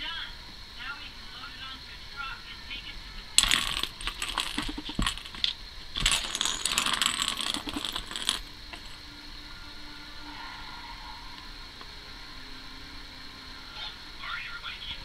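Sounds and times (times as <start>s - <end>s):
ball clattering around plastic track: 3.4s - 9.0s.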